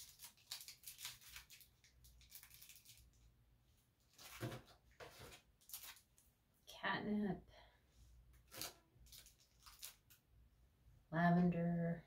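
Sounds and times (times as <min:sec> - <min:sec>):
plastic packaging crinkling: 0:00.0 - 0:03.3, 0:04.1 - 0:06.3, 0:08.4 - 0:10.2.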